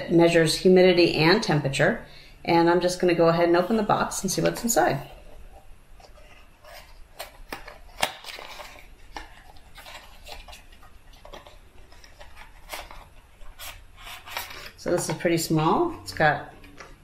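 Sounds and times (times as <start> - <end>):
packaging rustling: 4.4 - 15.2.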